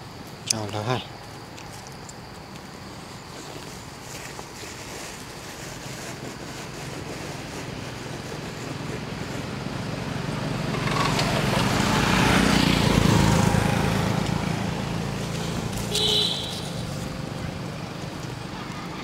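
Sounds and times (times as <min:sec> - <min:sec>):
vehicle passing by: 0:07.3 - 0:19.0.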